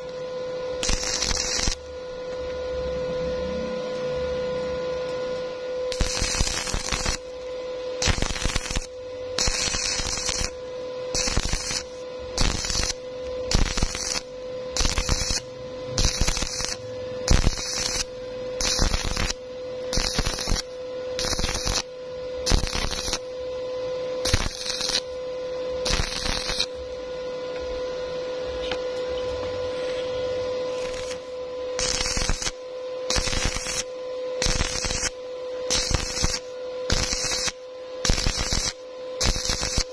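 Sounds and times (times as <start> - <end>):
steady hum: 0.0 - 39.9
welding arc crackling: 0.7 - 2.5, 5.9 - 23.3, 24.2 - 25.2, 25.8 - 26.9, 29.8 - 39.9.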